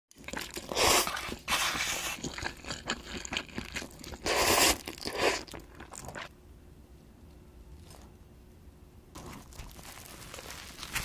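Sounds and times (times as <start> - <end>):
noodles being slurped: 0.1 - 6.3, 9.2 - 11.0.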